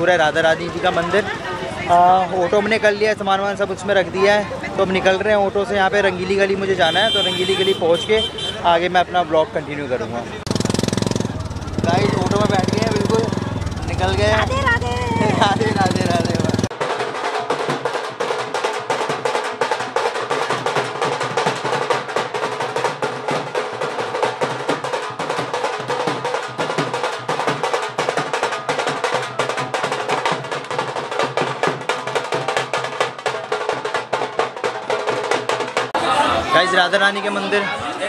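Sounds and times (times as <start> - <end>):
drum fast steady beat: 10.5 - 36.0.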